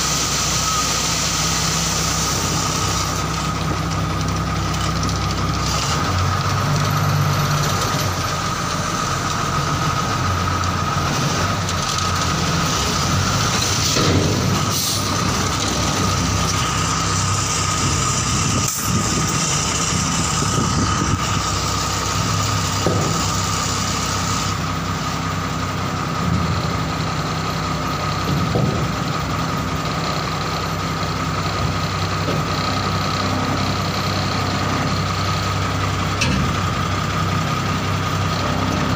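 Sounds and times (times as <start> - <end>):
truck diesel engine running: 0.0 - 38.9.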